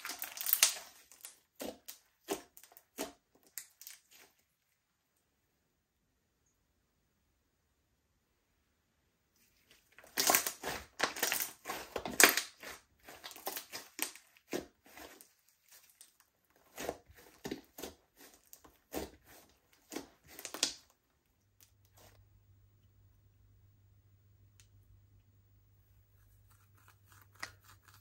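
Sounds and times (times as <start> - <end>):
slime squeezed with wet crackles: 0.0 - 4.4, 10.0 - 20.9.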